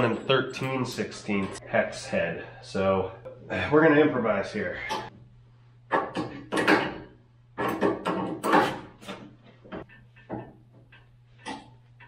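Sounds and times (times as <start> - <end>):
metal clanks and knocks: 5.9 - 12.0.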